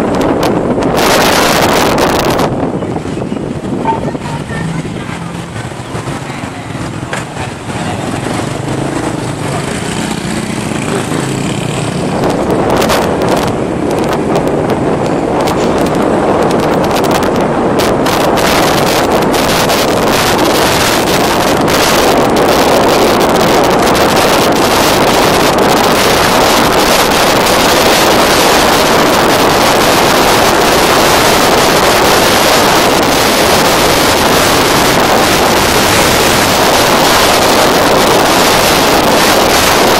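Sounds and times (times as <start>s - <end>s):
wind buffeting microphone: 0.0s - 39.9s
motorbike engine running: 3.7s - 14.6s.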